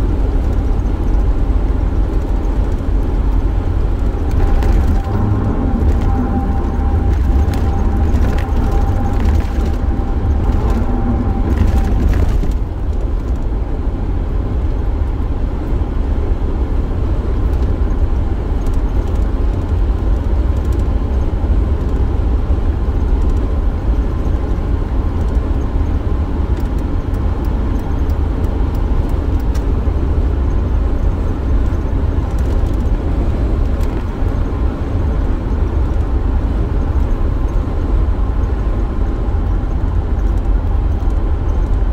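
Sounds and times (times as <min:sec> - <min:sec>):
van road and engine rumble: 0:00.0 - 0:41.9
steady higher hum: 0:02.8 - 0:14.7.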